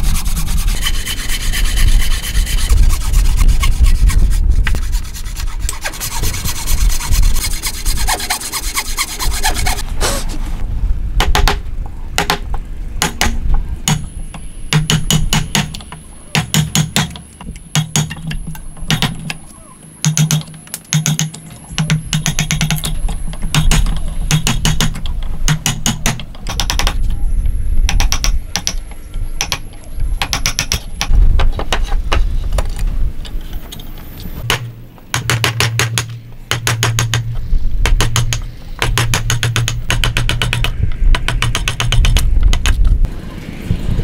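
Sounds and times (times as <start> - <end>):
mallet striking wood chisel: 13.0 - 14.1, 14.7 - 19.4, 20.0 - 27.0, 30.2 - 31.7, 34.4 - 42.8.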